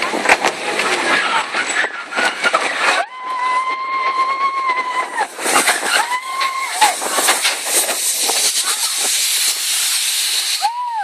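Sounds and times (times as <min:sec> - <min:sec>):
roller coaster rattling on track: 0:00.0 - 0:11.0
rider screaming: 0:02.9 - 0:05.3, 0:05.9 - 0:07.0.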